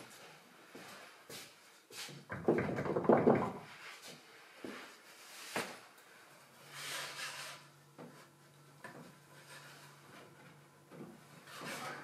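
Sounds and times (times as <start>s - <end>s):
wooden knock and rattle: 2.3s - 3.7s
wood-on-wood scrape: 6.6s - 12.0s.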